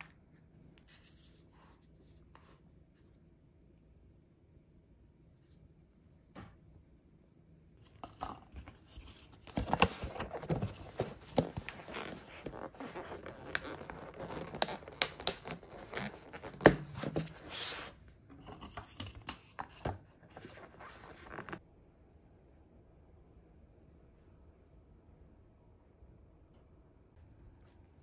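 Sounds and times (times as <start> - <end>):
plastic lids crackling and clicking: 7.9 - 17.6.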